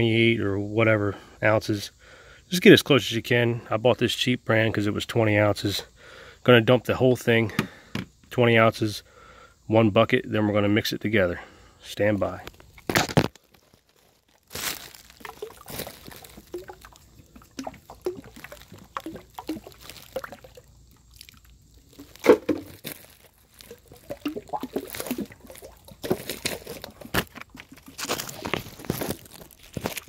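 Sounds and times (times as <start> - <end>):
liquid glugging from plastic bottle: 14.5 - 30.0.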